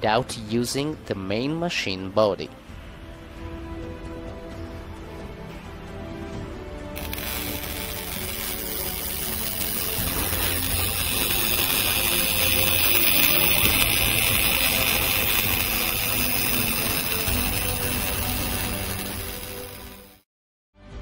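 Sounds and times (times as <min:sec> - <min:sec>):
welding arc hissing: 0:07.0 - 0:20.3.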